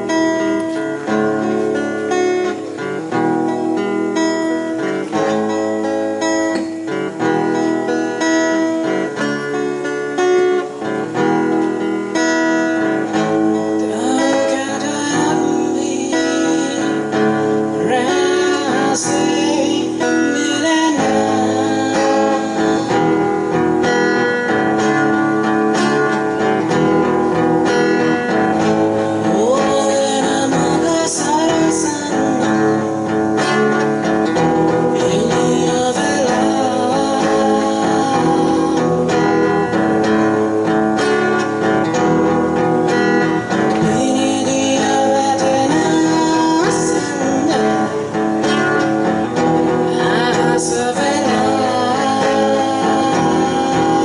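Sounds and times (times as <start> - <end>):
acoustic guitars strumming: 0.0 - 54.0
man singing: 13.0 - 24.3, 28.0 - 40.0, 43.2 - 54.0.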